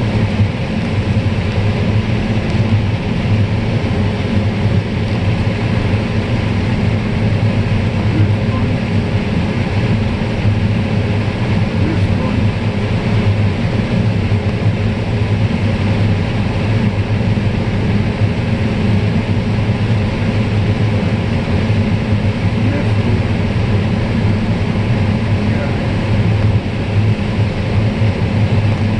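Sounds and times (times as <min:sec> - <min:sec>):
combine harvester mechanical drone: 0:00.0 - 0:28.9.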